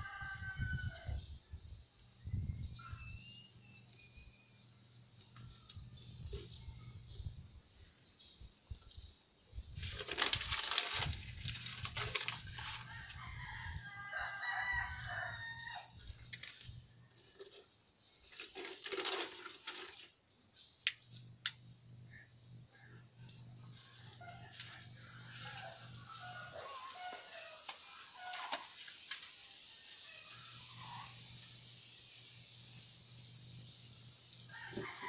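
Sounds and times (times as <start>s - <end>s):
rooster crowing: 0.0s - 1.2s, 12.6s - 16.0s, 23.8s - 28.8s, 34.5s - 35.0s.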